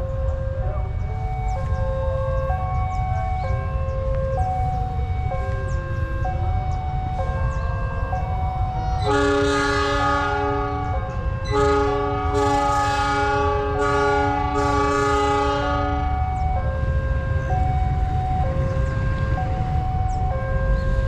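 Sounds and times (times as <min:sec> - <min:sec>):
locomotive horn blasts: 0:00.0 - 0:21.0
low train rumble: 0:00.0 - 0:21.0
two-tone crossing alarm: 0:00.0 - 0:21.0.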